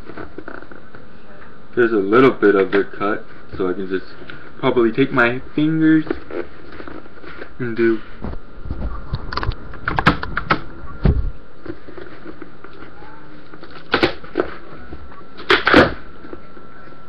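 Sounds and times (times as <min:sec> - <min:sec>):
packing tape and cardboard tearing: 0:11.6 - 0:16.2.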